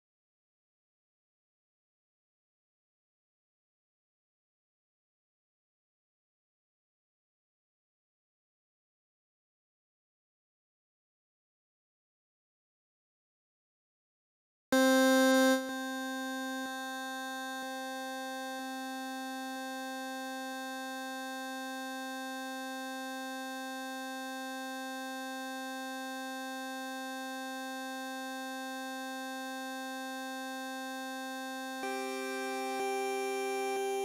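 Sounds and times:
buzzy synthesizer note: 14.8 - 20.2.

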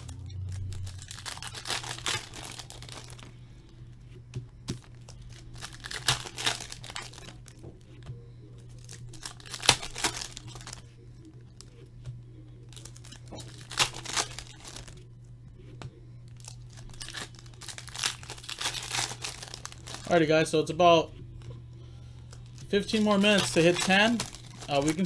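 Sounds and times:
foil wrappers crinkling and tearing: 0.0 - 3.4, 4.7 - 7.8, 8.6 - 10.9, 12.7 - 15.0, 16.3 - 20.7, 22.1 - 25.0
cards rustling: 0.0 - 15.0, 15.6 - 25.0
steady low hum: 0.0 - 25.0.

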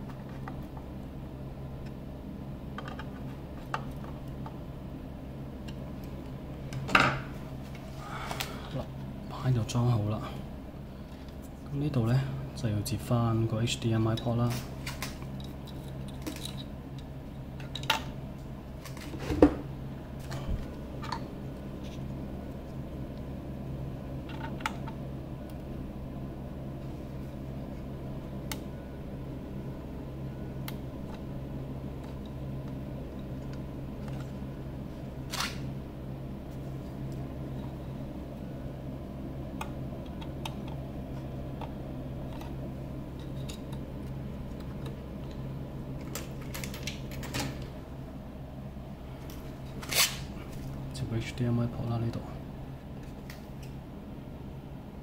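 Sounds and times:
steady low hum: 0.0 - 55.0
cables and connectors clicking: 30.6 - 31.3, 39.5 - 47.7.

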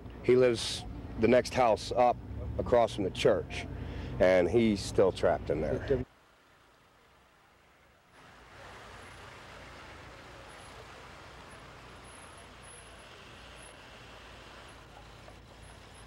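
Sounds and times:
road noise: 0.0 - 16.0
vehicle engine rumble: 0.0 - 16.0.

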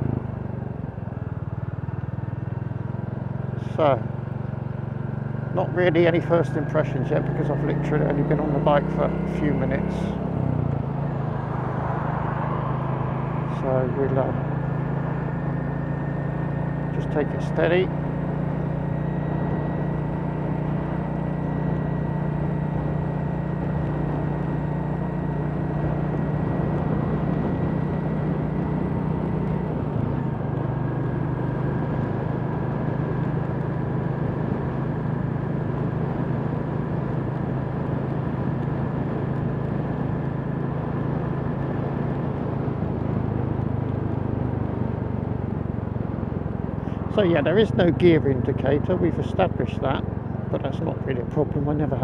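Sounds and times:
motorcycle engine running: 0.0 - 52.0
road and wind noise: 0.0 - 52.0.

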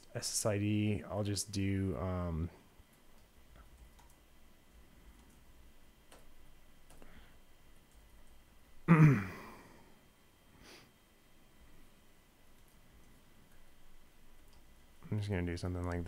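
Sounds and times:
faint keyboard clicks: 2.9 - 4.2, 5.0 - 5.5, 6.1 - 7.2, 7.9 - 8.4, 12.5 - 13.7, 14.3 - 14.7, 15.8 - 16.0
person sighing: 8.9 - 10.0.

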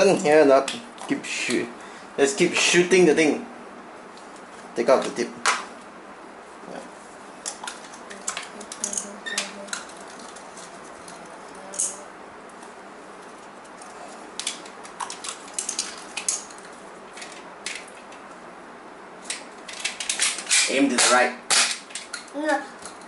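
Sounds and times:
plastic toy blaster clicks: 19.8 - 22.2.

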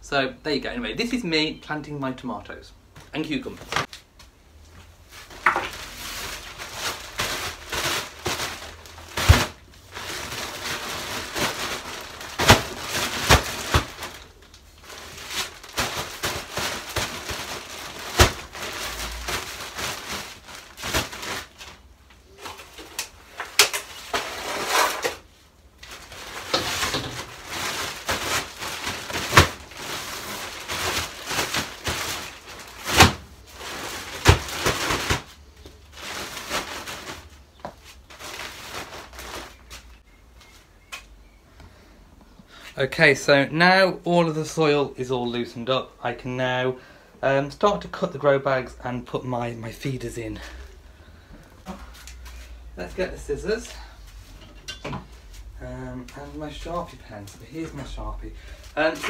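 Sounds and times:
plastic bags crinkling: 5.0 - 40.0
bags thumping down: 5.2 - 21.8, 25.8 - 39.8.

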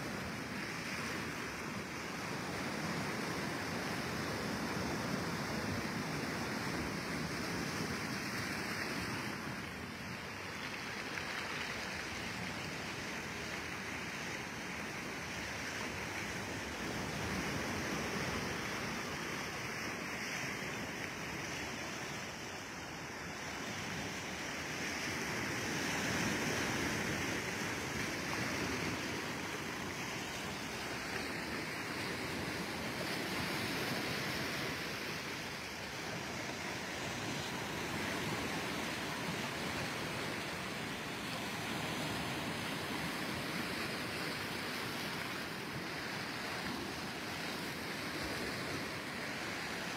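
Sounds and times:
sea surf on stony shore: 0.0 - 49.9.

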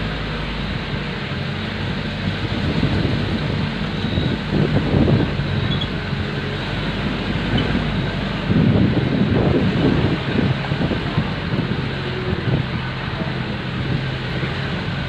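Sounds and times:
truck engine running: 0.0 - 15.0
wind gusts on microphone: 0.0 - 15.0.

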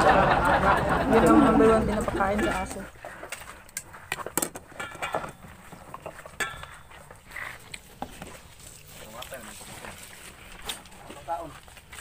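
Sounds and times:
person chewing meat off bones: 5.4 - 9.0.

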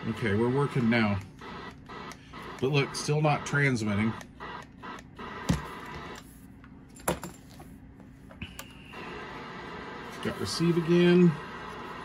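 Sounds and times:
radio static hiss: 0.0 - 6.2, 8.8 - 12.0
faint steady hum: 0.0 - 12.0.

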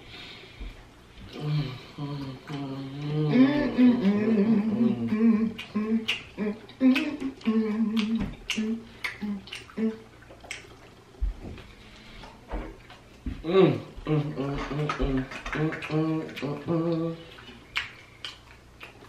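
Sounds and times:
man humming: 1.3 - 10.0, 13.4 - 17.4
wet mouth clicks while chewing: 5.5 - 10.8, 14.7 - 16.6, 17.4 - 19.0.

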